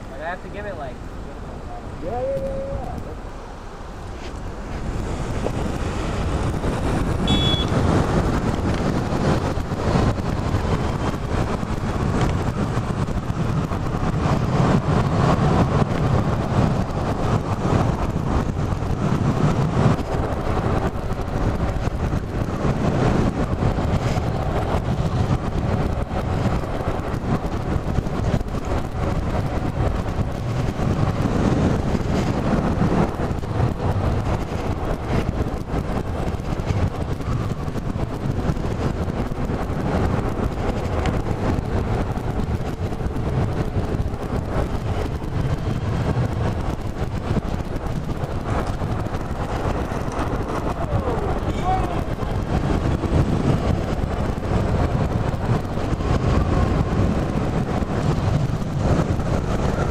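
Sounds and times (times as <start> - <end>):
road traffic: 0.0 - 59.9
wind noise on microphone: 0.0 - 59.9
brief high tone: 7.2 - 7.7.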